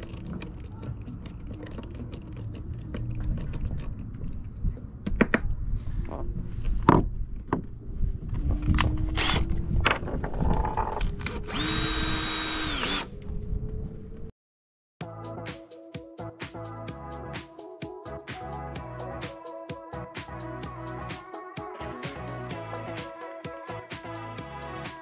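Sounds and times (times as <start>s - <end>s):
cordless drill running: 11.5s - 13.1s.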